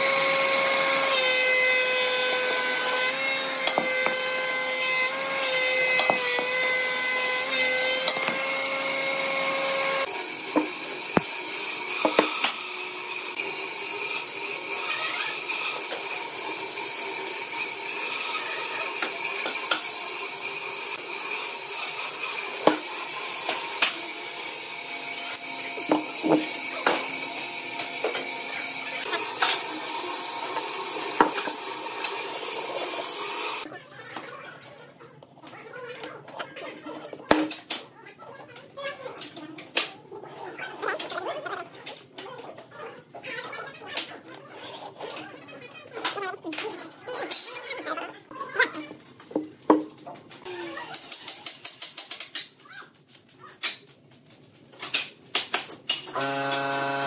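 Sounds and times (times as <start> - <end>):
thickness planer whining: 0.0 - 33.7, 56.1 - 57.0
tools tapping on wood: 3.6 - 4.2, 12.0 - 12.6, 22.6 - 22.8.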